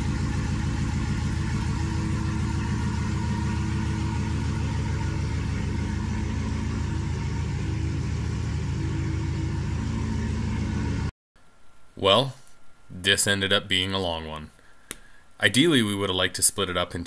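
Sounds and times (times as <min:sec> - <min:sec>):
car engine idling: 0:00.0 - 0:11.1.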